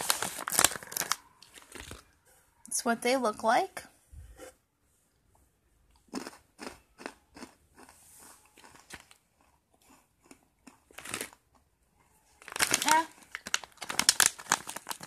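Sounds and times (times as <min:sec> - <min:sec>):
person chewing crunchy snack: 0:05.9 - 0:11.7.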